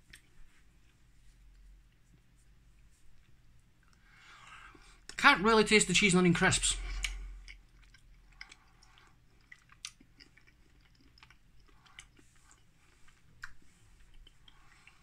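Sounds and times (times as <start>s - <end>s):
faint chewing: 0.0s - 5.2s, 6.8s - 15.0s
mouth clicks and crunches: 6.7s - 15.0s.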